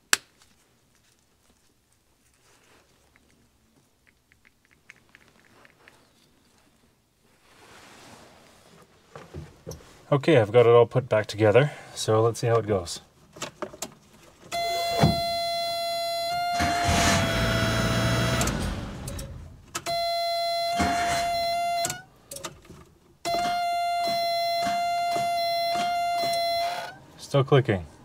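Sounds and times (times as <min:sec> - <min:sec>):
car warning buzzer: 0:14.5 - 0:22.1, 0:23.3 - 0:27.0.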